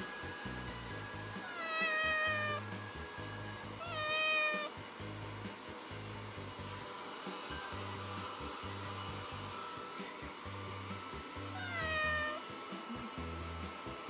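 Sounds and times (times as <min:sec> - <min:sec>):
kitten meowing: 0:01.4 - 0:02.6, 0:03.8 - 0:04.7, 0:11.6 - 0:12.4.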